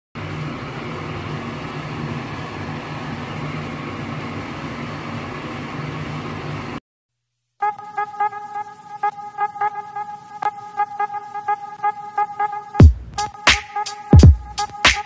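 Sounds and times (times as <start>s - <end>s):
machine hum: 0.2s - 6.8s.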